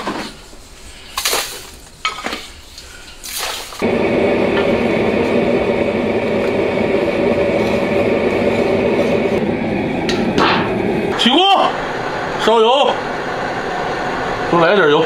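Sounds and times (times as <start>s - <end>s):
loud steady humming noise: 3.8s - 15.0s.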